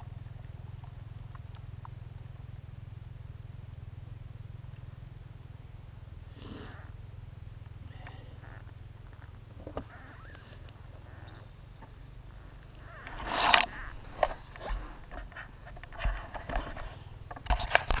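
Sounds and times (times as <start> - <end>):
dirt bike engine idling: 0.0 - 18.0
camera rustling in grass: 12.3 - 18.0.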